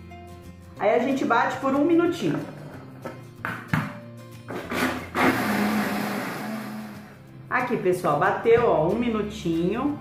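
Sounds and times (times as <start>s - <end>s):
background music: 0.0s - 10.0s
plastic lid knocks on blender jug: 3.4s - 4.0s.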